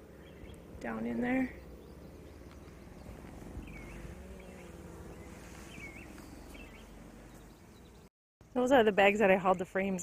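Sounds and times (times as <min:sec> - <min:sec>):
bees buzzing: 0:00.0 - 0:08.1
bird chirps: 0:00.2 - 0:00.6, 0:01.3 - 0:08.1.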